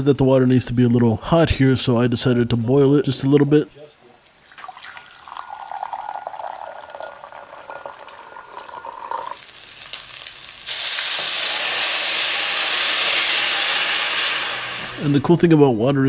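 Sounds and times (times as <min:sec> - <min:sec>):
water pouring into cup: 0:04.4 - 0:09.5
sizzling hiss in hot pan: 0:09.1 - 0:15.3.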